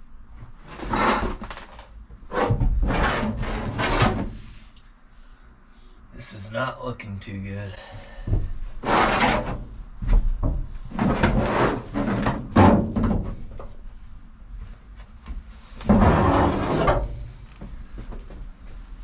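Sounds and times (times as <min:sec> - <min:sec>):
rubber mat scraping on metal floor: 0:00.6 - 0:04.7, 0:08.8 - 0:09.8, 0:10.8 - 0:13.5, 0:15.6 - 0:17.4.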